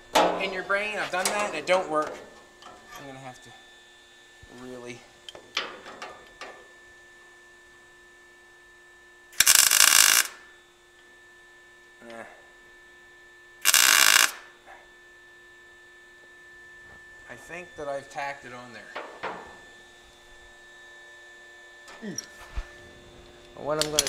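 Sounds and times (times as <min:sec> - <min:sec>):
faint steady hum: 0:00.0 - 0:24.0
tack welding bursts: 0:09.4 - 0:10.4, 0:13.6 - 0:14.5.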